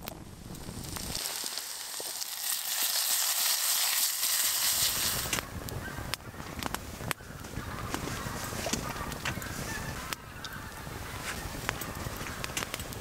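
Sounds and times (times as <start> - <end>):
wood fire crackling: 0.0 - 13.0
potatoes sizzling in a pan: 0.5 - 5.4.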